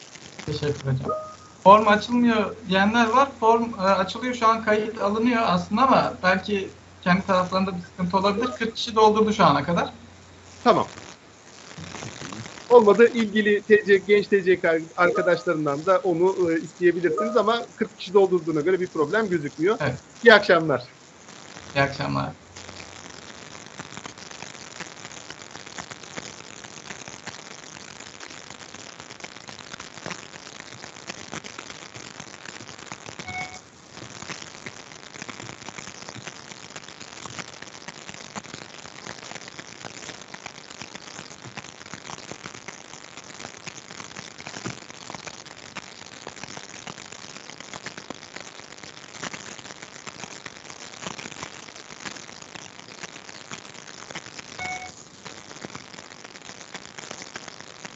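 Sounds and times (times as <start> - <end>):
crackling static: 0.0 - 57.9
short beep: 1.0 - 1.6, 15.1 - 15.5, 17.1 - 17.5, 33.3 - 33.6, 54.6 - 55.0.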